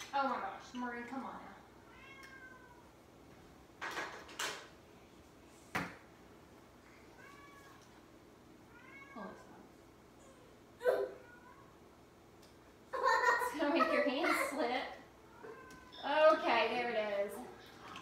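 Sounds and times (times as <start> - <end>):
cat meowing: 1.9 - 2.8, 8.7 - 9.4.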